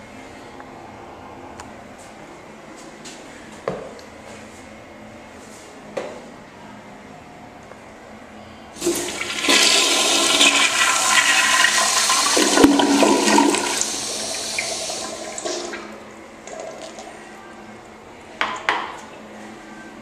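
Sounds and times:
toilet flushing: 8.8 - 17.2.

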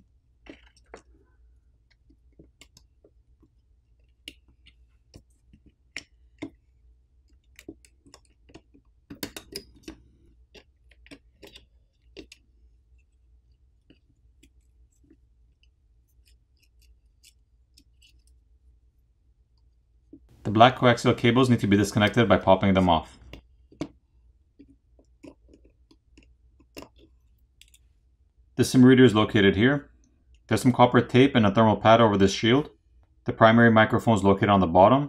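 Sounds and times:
small clicks and taps of handling: 1.8 - 12.4, 24.6 - 27.9.

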